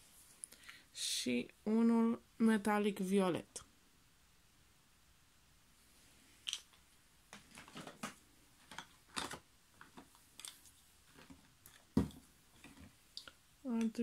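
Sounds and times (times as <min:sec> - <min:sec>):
plastic packages clicking: 0:07.4 - 0:10.6.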